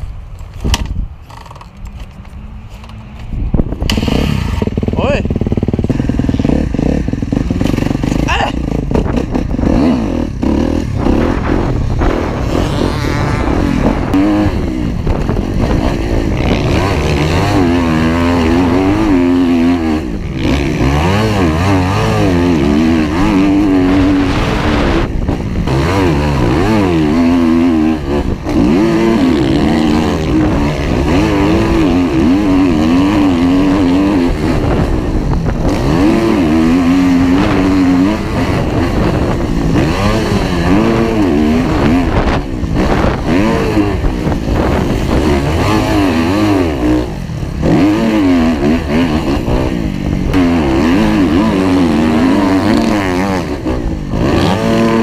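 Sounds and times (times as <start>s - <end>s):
dirt bike engine revving: 3.7s - 55.0s.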